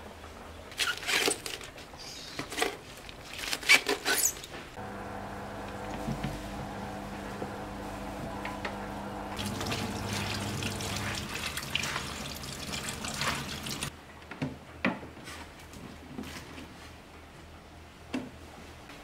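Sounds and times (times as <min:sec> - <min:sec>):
tap water running onto leaves: 0:07.3 - 0:13.9.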